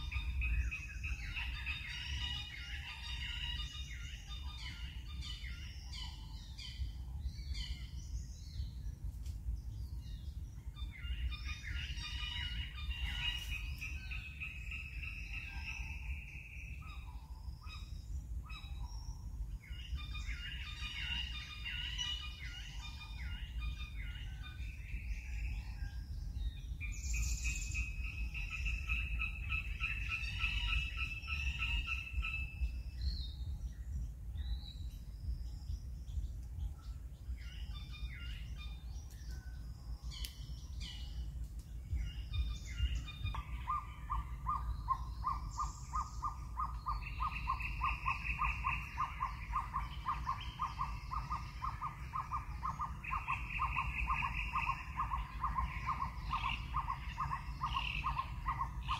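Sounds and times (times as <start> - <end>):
birds chirping and calling: 0.0 - 58.9
steady low rumble: 0.0 - 58.9
bird trills: 42.1 - 58.9.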